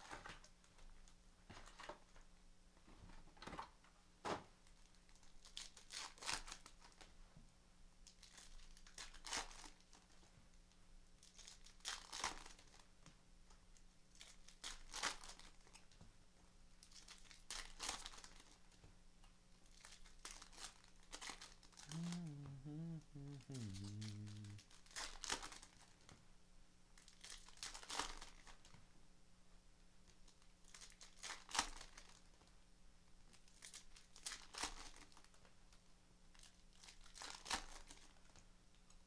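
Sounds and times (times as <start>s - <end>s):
faint steady hum: 21.8s - 24.6s.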